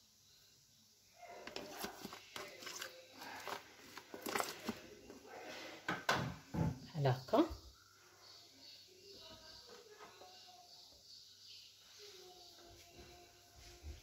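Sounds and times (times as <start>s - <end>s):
spoon scraping butter tub: 1.5s - 5.0s.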